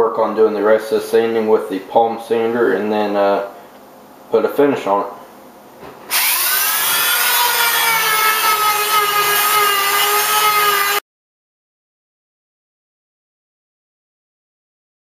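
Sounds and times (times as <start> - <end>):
rotary tool sanding wood: 6.1 - 11.0.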